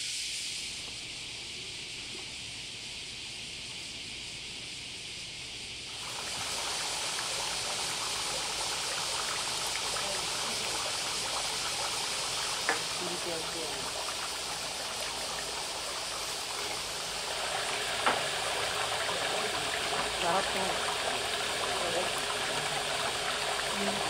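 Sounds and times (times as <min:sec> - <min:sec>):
steady high hiss: 0:00.0 - 0:24.0
water trickling into stone basin: 0:05.9 - 0:24.0.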